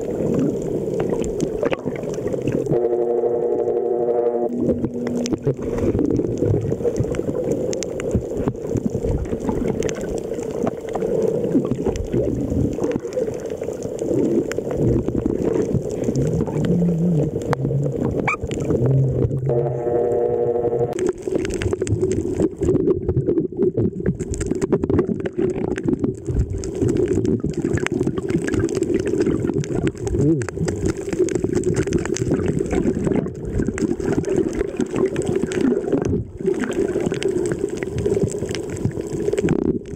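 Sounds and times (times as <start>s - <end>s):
muffled underwater rushing water: 0.0s - 39.9s
low hum: 2.6s - 6.6s, 16.4s - 21.2s.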